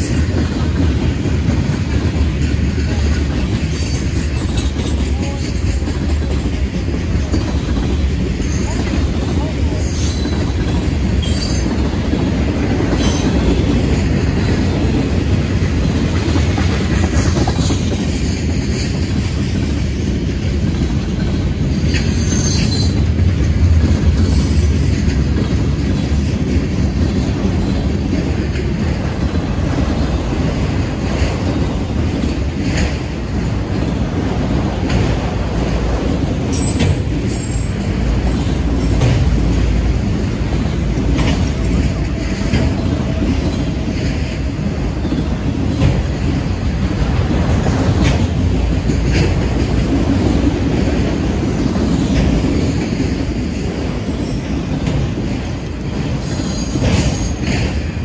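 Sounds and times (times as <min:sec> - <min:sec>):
freight train rumbling past: 0:00.0 - 0:58.0
wheels clicking over rail joints: 0:00.0 - 0:58.0
high wheel squeal: 0:21.8 - 0:23.1.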